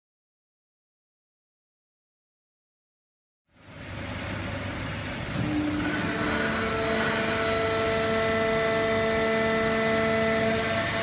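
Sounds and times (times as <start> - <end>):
baling press machine running: 3.5 - 11.0
machine whine: 3.6 - 11.0.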